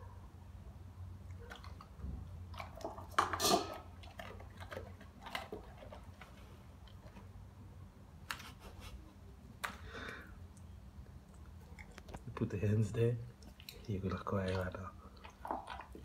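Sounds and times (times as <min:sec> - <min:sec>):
dog crunching kibble: 0:01.3 - 0:07.5, 0:11.2 - 0:16.0.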